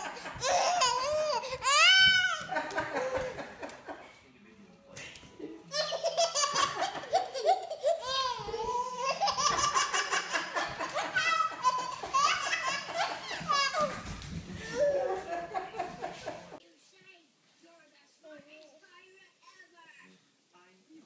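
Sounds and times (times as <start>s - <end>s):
baby laughing: 0.0s - 3.8s, 5.7s - 15.6s.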